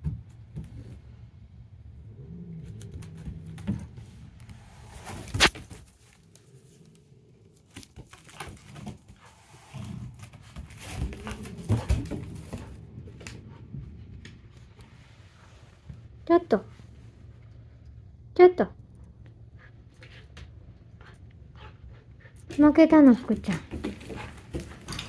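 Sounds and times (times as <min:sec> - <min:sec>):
cat growling: 0:01.9 - 0:04.9, 0:10.8 - 0:13.7.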